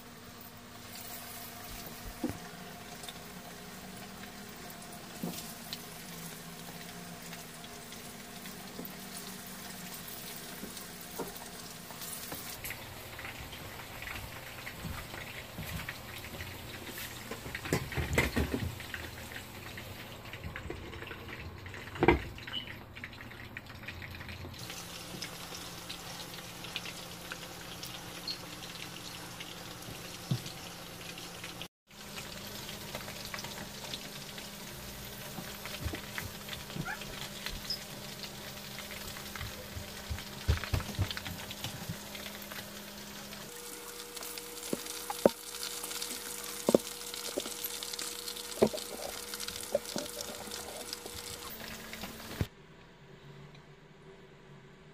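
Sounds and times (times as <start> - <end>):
oil sizzling with pops: 0.0 - 52.5.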